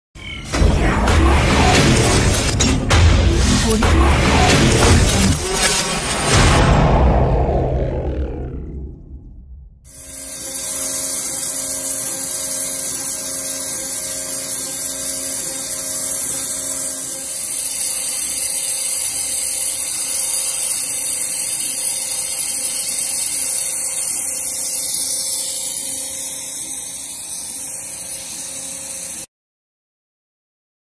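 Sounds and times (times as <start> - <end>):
waterjet high-pitched hiss: 9.9 - 29.3.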